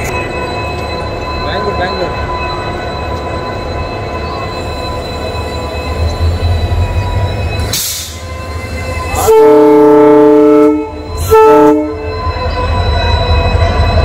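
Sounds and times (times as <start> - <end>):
locomotive horn blasts: 9.1 - 12.1.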